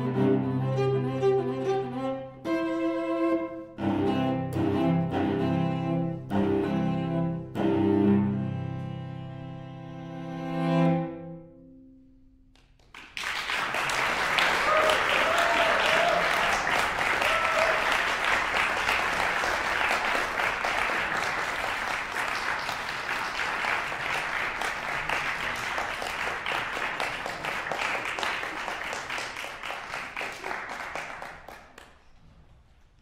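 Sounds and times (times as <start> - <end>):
audience applauding: 12.6 - 32.2.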